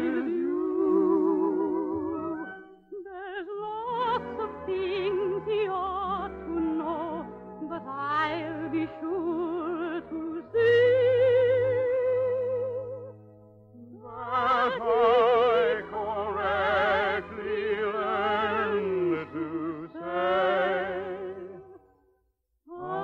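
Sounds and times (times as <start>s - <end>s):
operatic voice singing: 0.0s - 2.4s, 13.8s - 21.7s, 22.7s - 23.0s.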